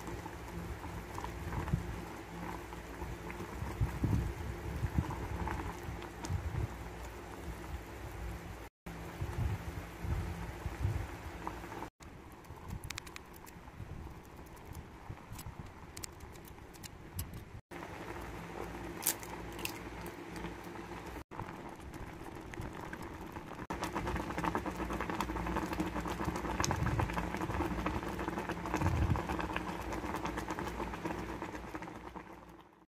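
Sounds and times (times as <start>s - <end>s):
noodles boiling and bubbling: 0.0s - 32.9s
utensil clicking against pot: 12.3s - 17.5s.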